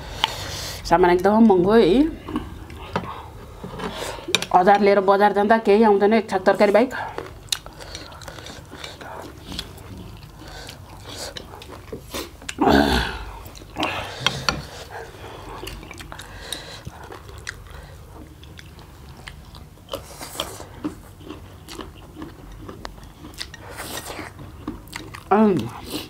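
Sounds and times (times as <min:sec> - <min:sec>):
noodles slurped and chewed: 0:06.9 - 0:26.0.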